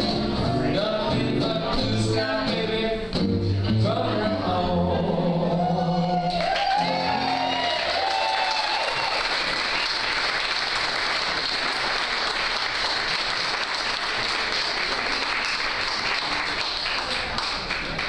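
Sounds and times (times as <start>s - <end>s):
person singing: 0.0s - 7.6s
crowd applauding: 6.2s - 18.0s.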